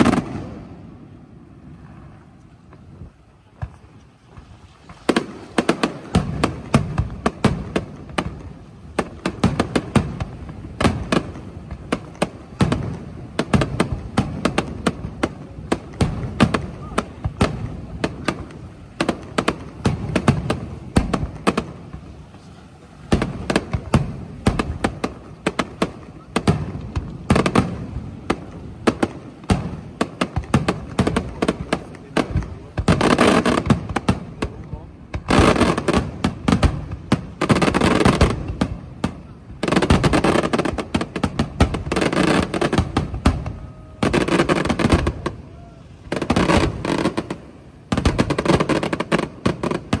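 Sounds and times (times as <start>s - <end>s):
fireworks bangs and cracks: 0.0s - 50.0s.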